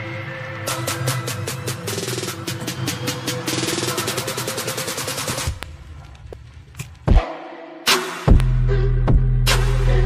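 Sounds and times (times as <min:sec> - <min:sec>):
electronic dance music: 0:00.1 - 0:05.6.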